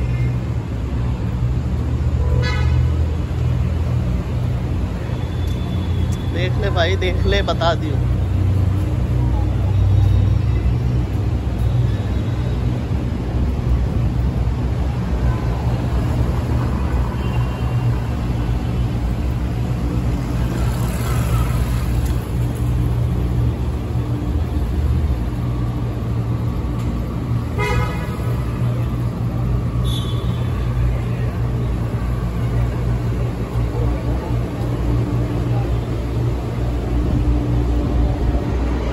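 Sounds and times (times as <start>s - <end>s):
traffic rumble: 0.0s - 38.9s
car horn beep: 27.6s - 28.3s, 29.8s - 30.7s.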